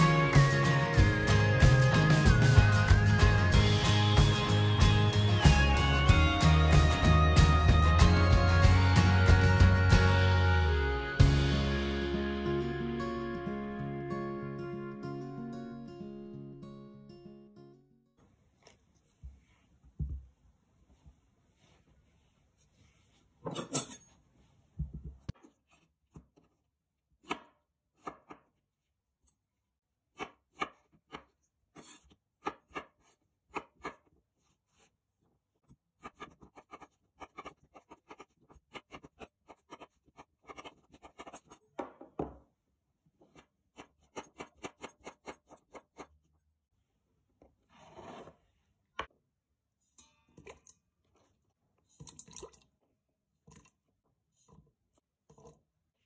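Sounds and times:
knife chopping on cutting board: 27.2 - 28.5, 30.2 - 34.1, 43.3 - 46.1
knife scraping board: 31.8 - 34.0, 36.0 - 41.6, 43.2 - 46.1, 47.7 - 48.5.

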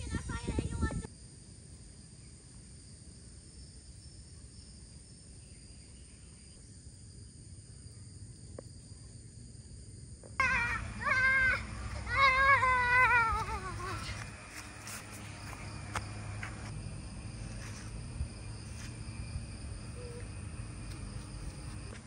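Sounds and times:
crickets chirring: 0.0 - 22.0
faint low hum: 3.5 - 22.0
loud pitched call: 10.4 - 13.9.

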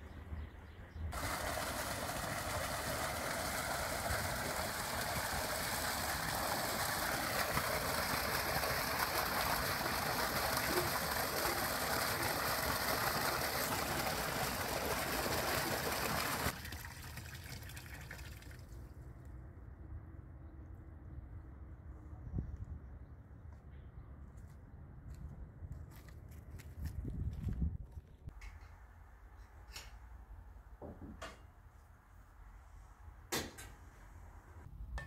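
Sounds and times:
water gushing into concrete basin: 1.1 - 18.8.

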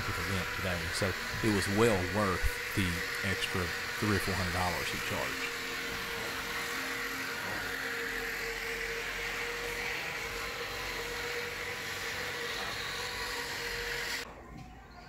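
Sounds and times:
floor sander grinding: 0.0 - 14.3.

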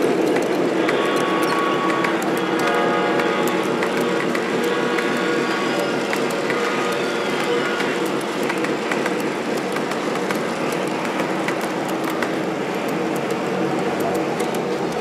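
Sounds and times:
model train wheels clattering: 0.0 - 15.0.

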